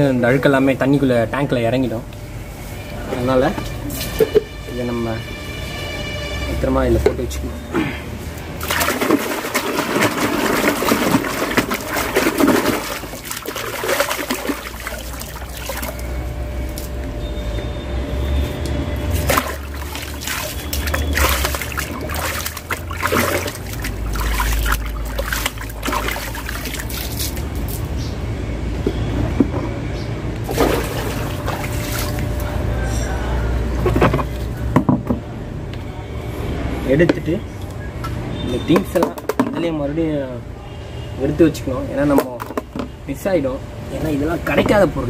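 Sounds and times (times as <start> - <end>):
water splashing in a plastic tub: 8.5 - 17.0, 19.0 - 27.9, 30.4 - 32.6
sponge squeezed in water: 8.6 - 16.1, 19.1 - 27.8, 30.5 - 32.3.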